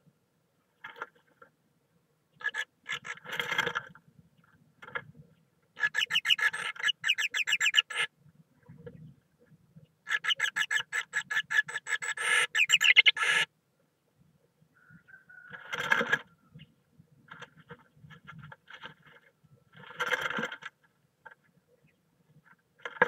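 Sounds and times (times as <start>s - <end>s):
great tit chattering calls: 6.0s - 8.1s, 12.0s - 13.4s.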